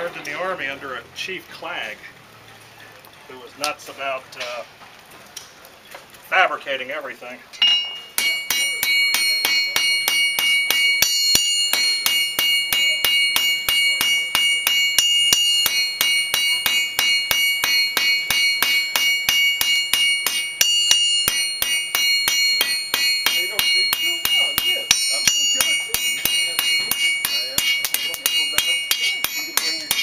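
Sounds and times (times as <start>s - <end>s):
anvil ringing: 7.6s - 30.0s
hammer striking steel on anvil: 7.6s - 30.0s.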